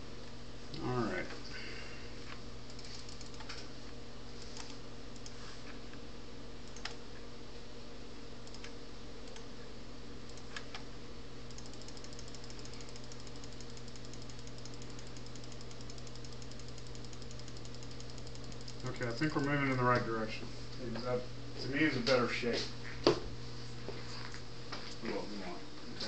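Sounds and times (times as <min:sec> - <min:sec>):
steady low hum: 0:00.0 - 0:26.0
computer mouse clicks: 0:02.7 - 0:03.6, 0:04.5 - 0:05.4, 0:06.6 - 0:07.0, 0:08.4 - 0:09.5, 0:10.3 - 0:10.9, 0:11.5 - 0:19.4
fast even ticking: 0:11.5 - 0:19.8.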